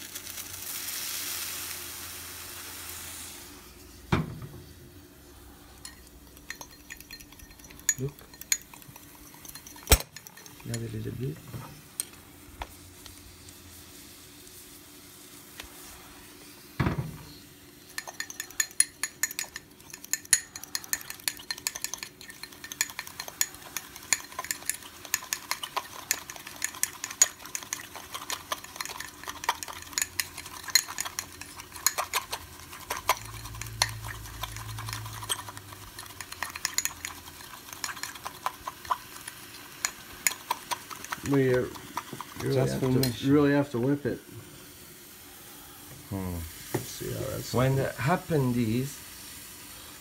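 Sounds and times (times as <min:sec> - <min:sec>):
spoon clinking against glass: 0:05.8 - 0:11.0, 0:17.9 - 0:43.2.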